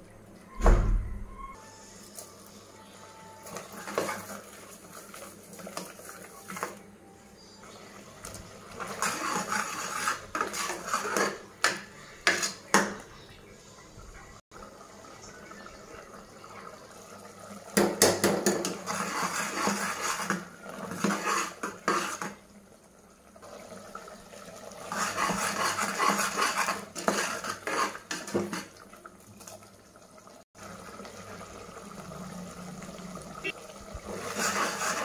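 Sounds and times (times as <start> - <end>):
ladle scraping metal pot: 3.5 - 6.7, 8.7 - 13.0, 18.4 - 22.4, 24.8 - 28.8, 34.1 - 35.0.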